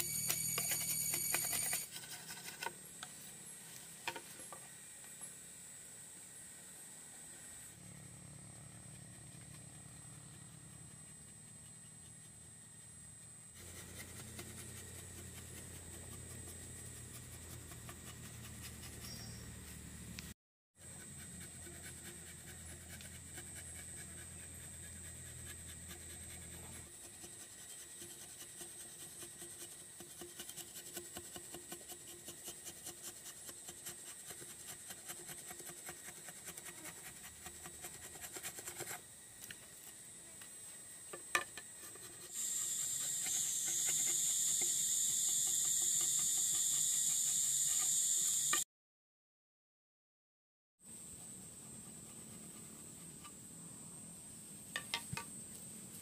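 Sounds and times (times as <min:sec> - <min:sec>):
knife scraping bamboo: 0:00.0 - 0:03.3, 0:13.5 - 0:20.2, 0:20.8 - 0:40.0, 0:41.1 - 0:48.6
high insect drone: 0:20.8 - 0:48.6.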